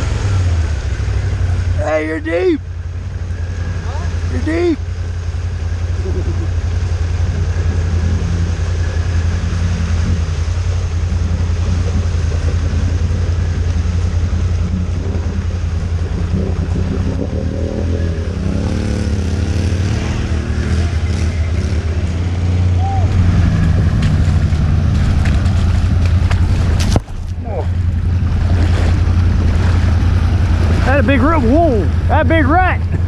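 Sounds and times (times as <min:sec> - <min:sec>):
engine revving: 0:00.0 - 0:33.0
low engine drone: 0:00.0 - 0:33.0.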